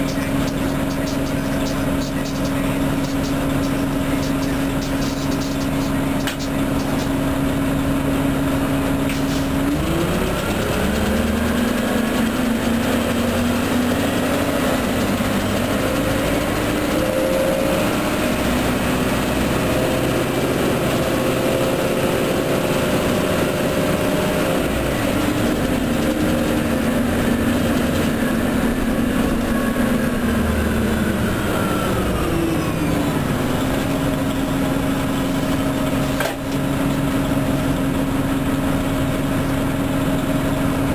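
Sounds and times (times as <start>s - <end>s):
bus engine idling and pulling away: 0.0s - 40.9s.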